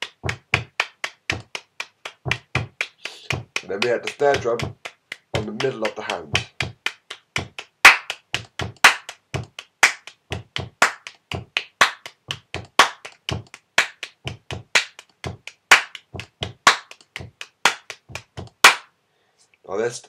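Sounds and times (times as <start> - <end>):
hand claps: 0.0 - 18.9.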